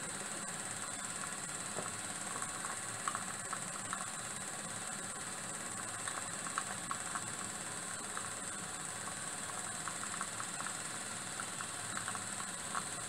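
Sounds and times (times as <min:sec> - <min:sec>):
light irregular clicks: 0:11.4 - 0:13.0.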